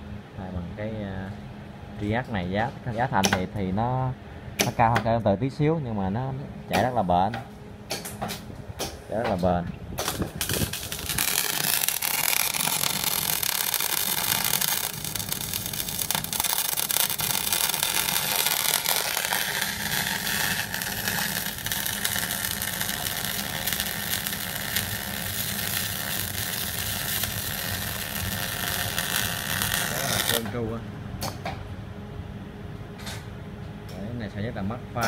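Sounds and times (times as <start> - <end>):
low hum: 0.0 - 33.9
welding arc crackling: 10.0 - 30.6.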